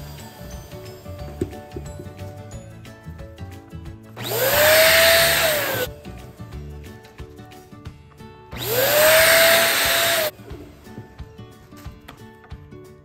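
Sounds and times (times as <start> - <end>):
electric balloon pump whining: 4.2 - 5.9, 8.6 - 10.3.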